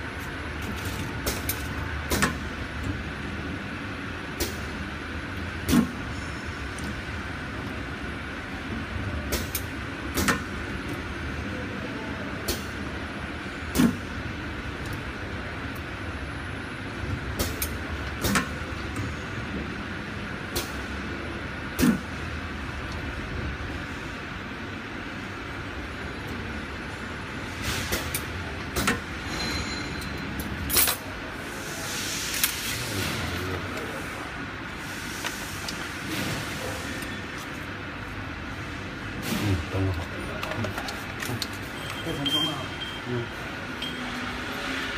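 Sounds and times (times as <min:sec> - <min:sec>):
sharp mechanical clacks and hisses: 0:17.4 - 0:19.1, 0:27.5 - 0:30.1, 0:30.7 - 0:37.4.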